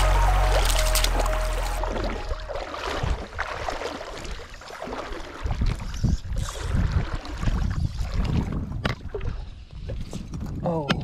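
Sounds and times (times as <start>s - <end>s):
wind buffeting microphone: 5.4s - 11.0s.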